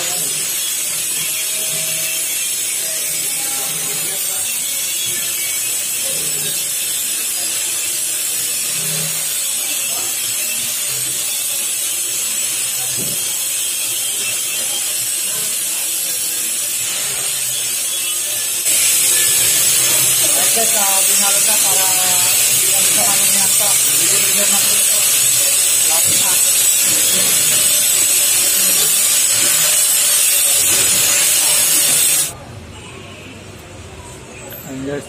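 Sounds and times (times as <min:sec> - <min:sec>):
steady high hiss: 0:18.7 - 0:32.3.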